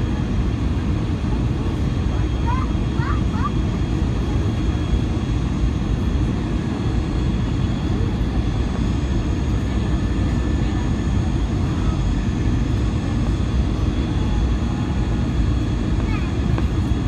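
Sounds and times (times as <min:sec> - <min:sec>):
airplane cabin rumble: 0:00.0 - 0:17.0.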